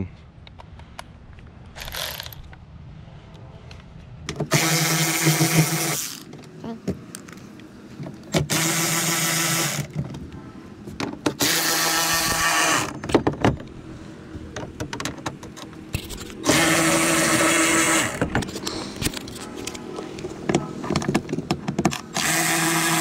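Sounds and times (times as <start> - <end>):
power drill motor whine: 4.5 - 6.3, 8.4 - 9.9, 11.4 - 13.0, 16.3 - 18.3, 21.9 - 23.0.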